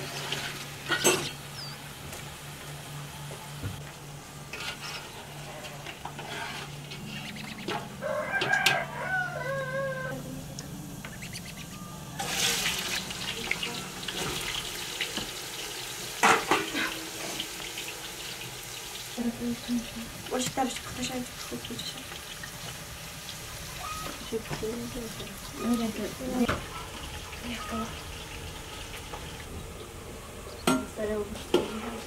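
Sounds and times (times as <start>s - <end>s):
potatoes sizzling in hot oil: 0.0s - 2.8s, 12.2s - 32.0s
rooster crowing: 7.8s - 10.4s.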